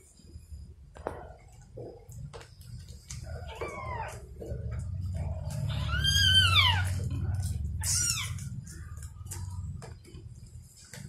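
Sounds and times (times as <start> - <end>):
low steady rumble: 0.2 - 11.0
kittens mewing: 3.3 - 4.4, 5.5 - 8.7.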